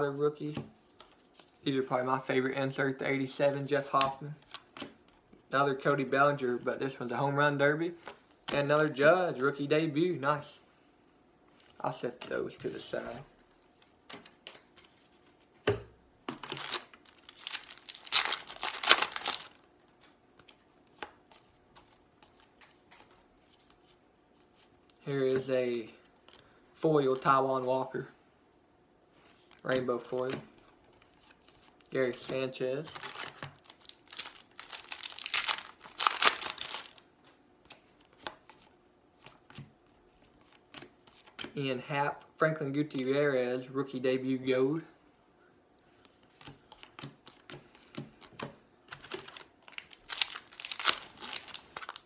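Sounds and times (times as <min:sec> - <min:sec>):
wrapper tearing and crinkling: 0:16.4 - 0:19.6, 0:32.9 - 0:37.0, 0:49.0 - 0:52.0.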